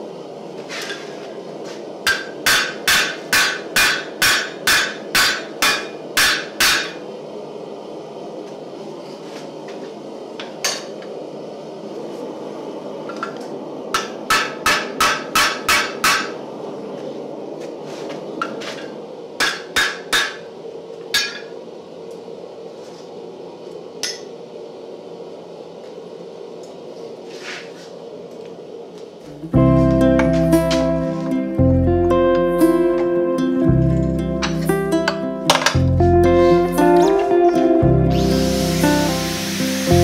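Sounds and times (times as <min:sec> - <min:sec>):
steady low hum: 0:00.0 - 0:40.0
hammer striking hot metal: 0:02.0 - 0:07.0, 0:13.9 - 0:16.4, 0:19.4 - 0:20.5, 0:21.1 - 0:21.6.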